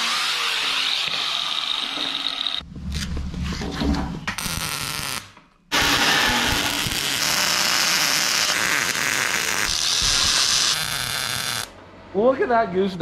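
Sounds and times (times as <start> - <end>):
welder arc crackling: 4.4 - 11.8.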